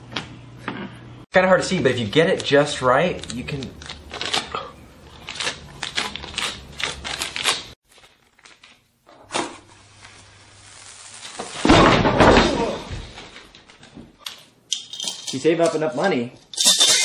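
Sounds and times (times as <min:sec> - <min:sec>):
paper bill crinkling: 0:02.3 - 0:08.9
steady hiss: 0:09.6 - 0:11.8.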